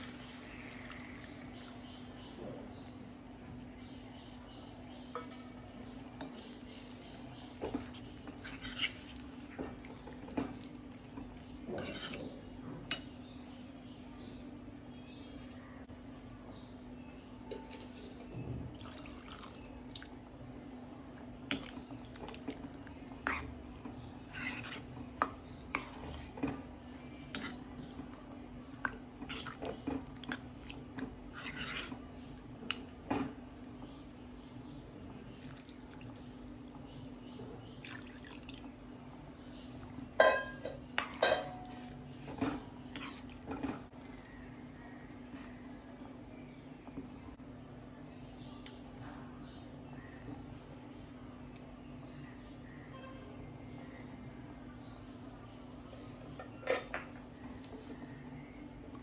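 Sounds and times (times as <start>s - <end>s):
spoon stirring and scraping pan: 5.1s - 13.2s, 21.5s - 33.5s, 40.2s - 44.3s.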